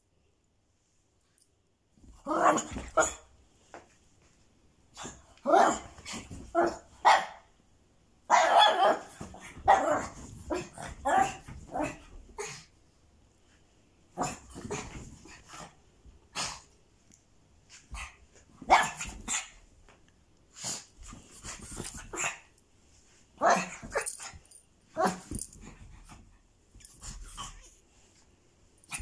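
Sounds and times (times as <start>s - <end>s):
dog barking: 6.6s - 7.5s, 8.3s - 9.1s.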